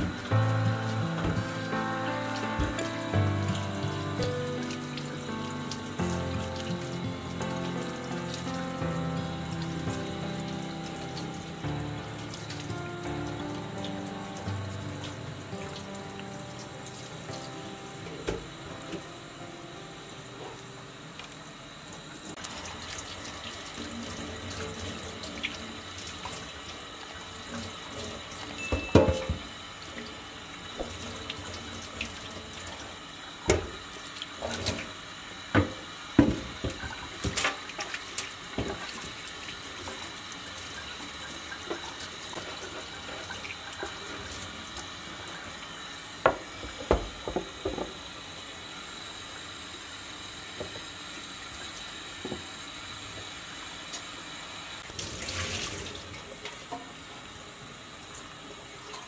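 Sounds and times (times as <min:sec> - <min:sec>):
tap running into steel sink: 0:01.2 - 0:01.5, 0:02.6 - 0:02.9, 0:18.1 - 0:19.1, 0:28.7 - 0:29.5, 0:33.4 - 0:33.8, 0:35.5 - 0:37.6, 0:46.2 - 0:48.0.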